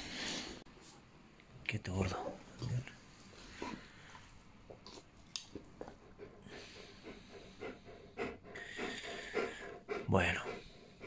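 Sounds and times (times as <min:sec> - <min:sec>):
dog panting: 0:05.5 - 0:11.0.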